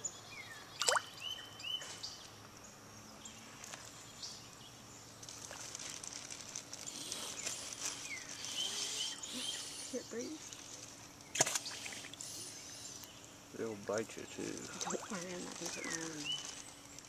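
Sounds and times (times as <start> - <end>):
birds chirping: 6.8 - 17.0
water splashing and sloshing: 14.7 - 15.7.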